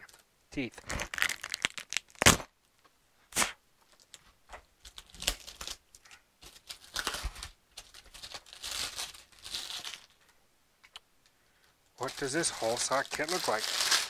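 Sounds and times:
packaging crinkling and tearing: 0:00.8 - 0:02.5, 0:04.8 - 0:10.2, 0:12.0 - 0:14.0
sharp crack: 0:00.8 - 0:02.5, 0:03.3 - 0:03.6.

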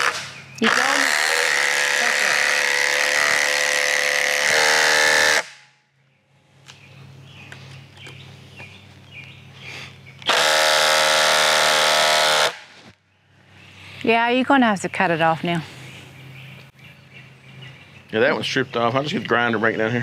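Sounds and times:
cordless drill motor whining: 0:00.0 - 0:05.5, 0:10.2 - 0:12.6.

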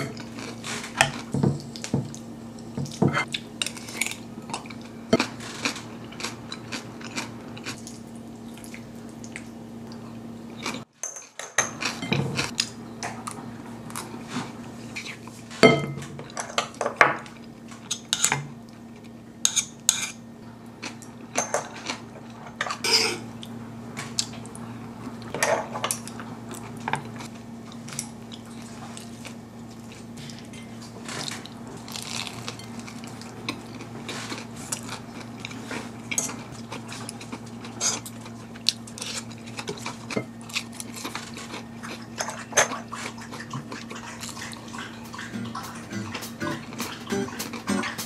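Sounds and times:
low steady hum: 0:11.6 - 0:48.0.

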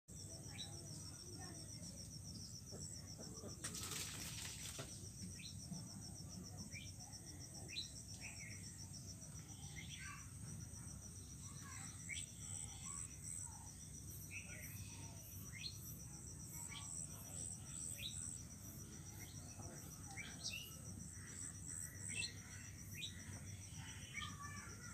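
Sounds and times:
insects trilling: 0:00.1 - 0:24.9
short insect chirps: 0:03.4 - 0:05.7.

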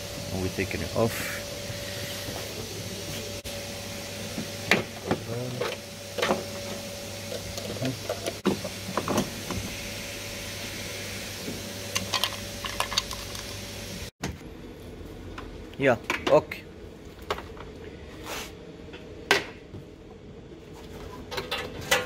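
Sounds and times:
steady hum: 0:00.0 - 0:21.5.

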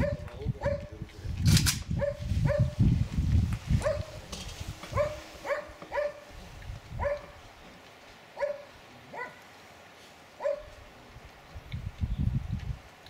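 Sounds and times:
dog barking: 0:00.0 - 0:00.9, 0:02.0 - 0:02.8, 0:03.8 - 0:04.2, 0:04.9 - 0:06.3, 0:07.0 - 0:07.4, 0:08.4 - 0:09.4, 0:10.4 - 0:10.8.

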